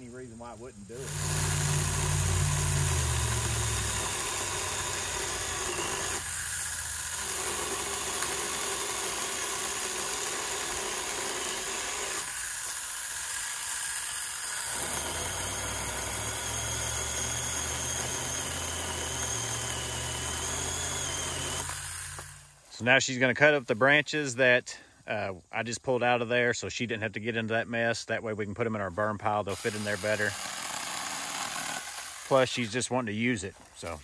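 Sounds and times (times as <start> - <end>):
motor running steadily: 1.0 - 22.6.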